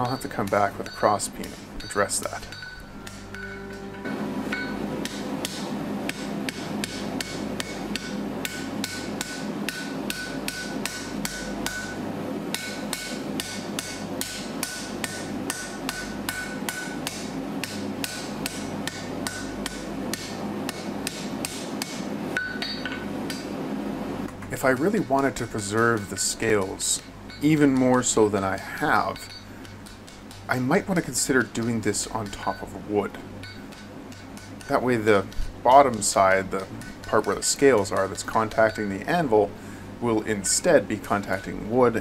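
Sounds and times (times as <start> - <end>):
anvil ringing: 0.0 - 12.0, 22.4 - 23.5, 29.0 - 29.8
hammer striking steel on anvil: 0.0 - 23.6, 25.8 - 30.4, 33.4 - 34.9, 35.7 - 39.0.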